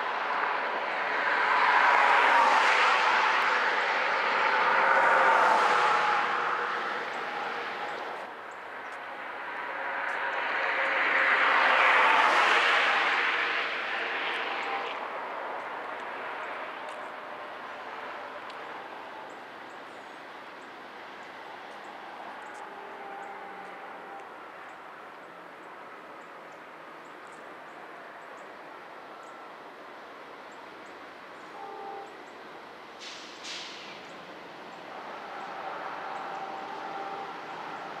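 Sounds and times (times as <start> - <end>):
aircraft passing drone: 0.0 - 24.3.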